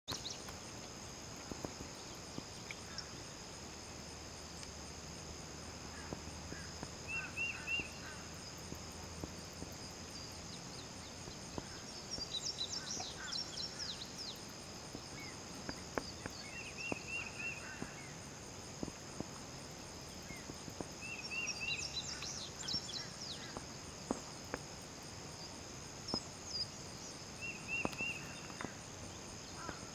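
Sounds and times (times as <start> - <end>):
high insect drone: 0.1 - 29.9
bird calls: 6.0 - 8.3, 11.5 - 14.4, 16.0 - 18.2, 20.2 - 23.7, 27.4 - 28.8, 29.5 - 29.9.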